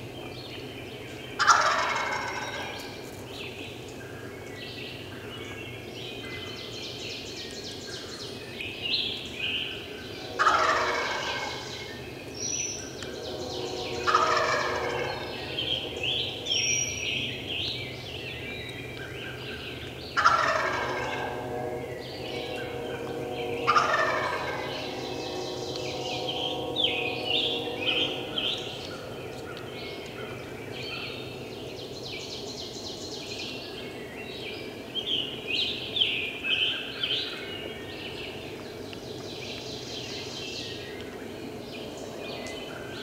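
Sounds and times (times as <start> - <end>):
songbirds chirping: 0.0 - 43.0
turkey gobbling: 1.4 - 2.8, 10.4 - 11.7, 14.0 - 15.4, 20.2 - 21.4, 23.6 - 24.7.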